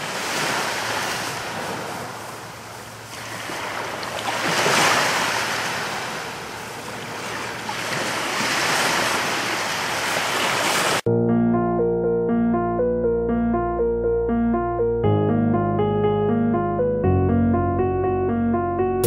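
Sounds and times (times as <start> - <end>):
waves breaking and washing back: 0.0 - 11.1.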